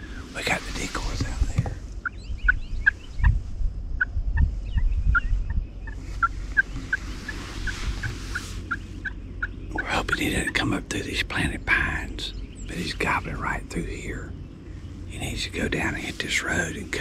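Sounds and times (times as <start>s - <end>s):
wind thumps on microphone: 0.7s - 9.2s.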